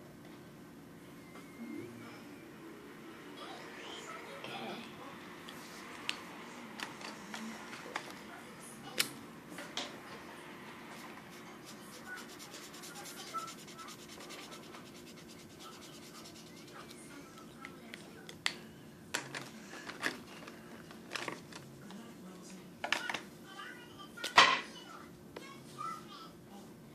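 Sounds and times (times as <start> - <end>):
pencil scratching on paper: 11.2 - 17.0.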